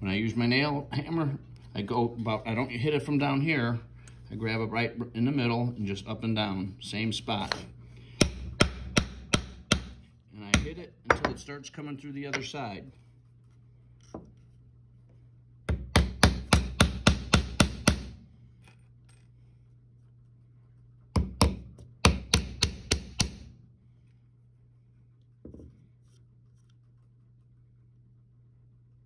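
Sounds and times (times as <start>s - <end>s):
hammer driving nails into wood: 8.2s - 10.0s, 15.7s - 18.2s, 21.2s - 23.5s.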